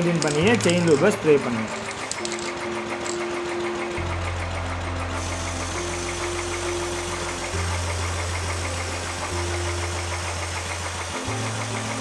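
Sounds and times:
motorcycle engine idling: 0.0 - 12.0
aerosol spray hissing: 5.2 - 12.0.

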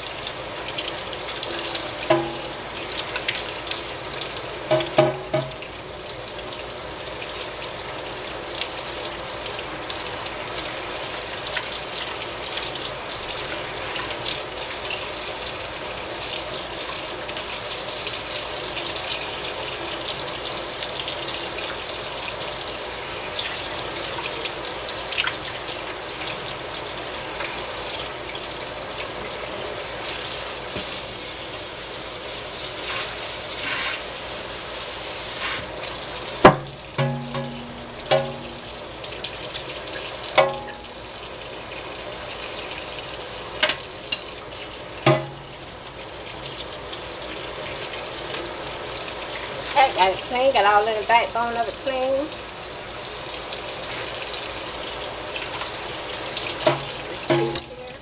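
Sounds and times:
faucet running into metal sink: 0.0 - 58.0
fish rubbed clean by hand: 32.8 - 34.3.

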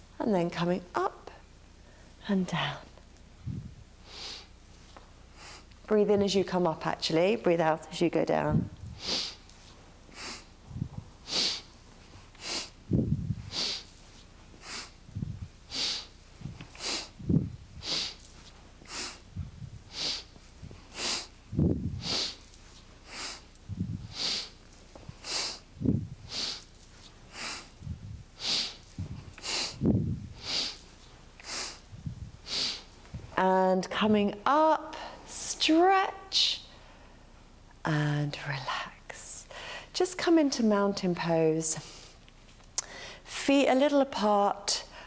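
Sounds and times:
woman breathing hard: 12.4 - 13.9, 14.6 - 26.7, 27.3 - 30.8, 39.5 - 39.9, 42.8 - 43.2
soft low bumps: 12.8 - 13.5, 15.1 - 15.6, 16.4 - 17.8, 21.4 - 22.1, 23.6 - 24.1, 25.0 - 26.3, 27.8 - 28.3, 29.0 - 30.4, 31.9 - 32.4.

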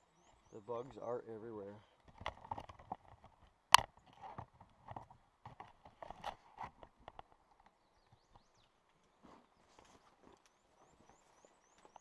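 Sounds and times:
movement on rock: 2.0 - 7.4.

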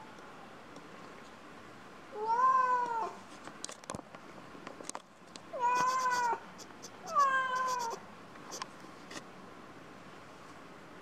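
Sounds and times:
cat meowing: 2.2 - 3.2, 5.6 - 6.4, 7.0 - 8.0.

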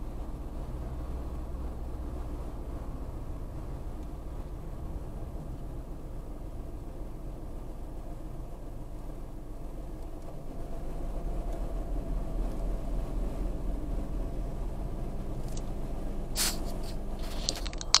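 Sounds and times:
car engine rumble: 0.0 - 18.0
surrounding traffic: 0.0 - 18.0
rustling click: 16.4 - 18.0.

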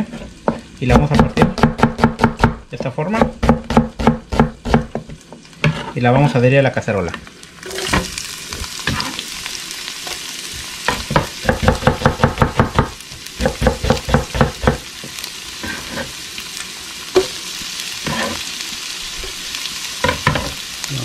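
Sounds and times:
onion sizzling in hot oil: 0.0 - 21.0.

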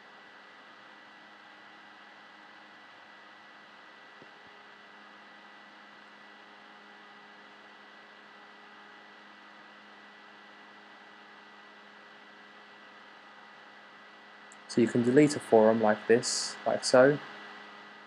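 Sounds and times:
low electrical hum: 0.0 - 18.0
microphone hiss: 10.8 - 18.0.

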